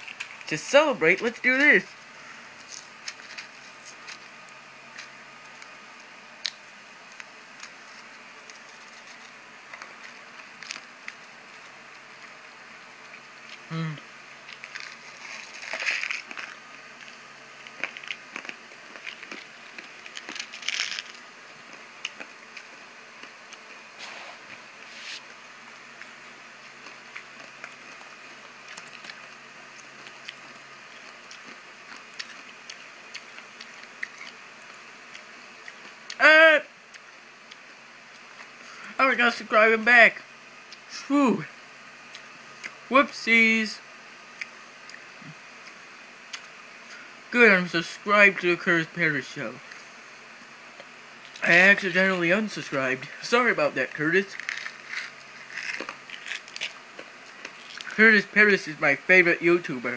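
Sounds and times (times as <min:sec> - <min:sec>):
person chewing candy: 0:13.1 - 0:25.3, 0:26.0 - 0:36.2, 0:54.3 - 0:58.0
candy wrapper crackling: 0:14.5 - 0:21.3, 0:54.3 - 0:58.0.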